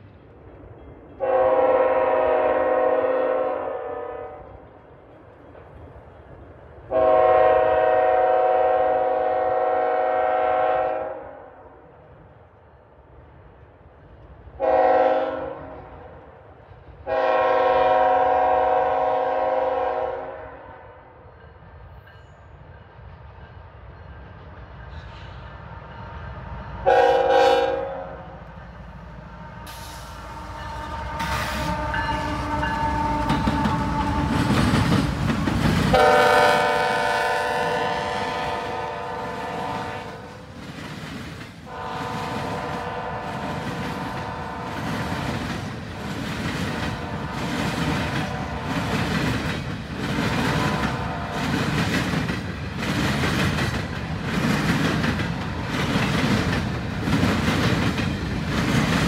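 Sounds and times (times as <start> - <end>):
locomotive air horn blasts: 1.2 - 4.4, 6.9 - 11.4, 14.6 - 15.9, 17.0 - 20.8, 26.8 - 28.3, 29.4 - 34.5, 35.9 - 40.3, 41.7 - 44.8, 46.9 - 47.6, 48.2 - 48.9, 50.5 - 51.4.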